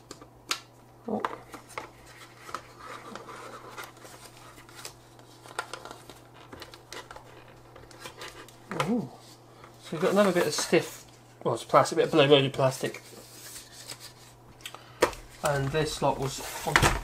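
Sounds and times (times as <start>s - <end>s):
light plastic rustling: 1.2s - 11.3s, 15.0s - 17.0s.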